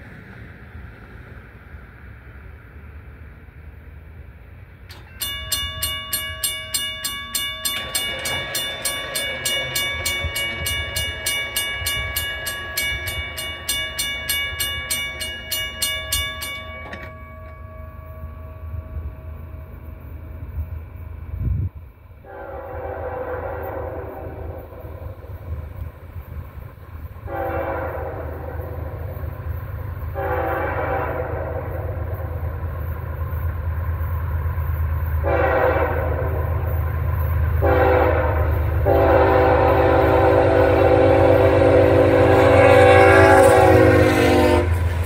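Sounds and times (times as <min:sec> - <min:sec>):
crossing bell ringing: 0:04.9 - 0:21.8, 0:31.6 - 0:45.0
distant locomotive horn: 0:22.2 - 0:25.3, 0:27.2 - 0:29.3, 0:30.0 - 0:32.4, 0:35.2 - 0:36.7, 0:37.6 - 0:45.0.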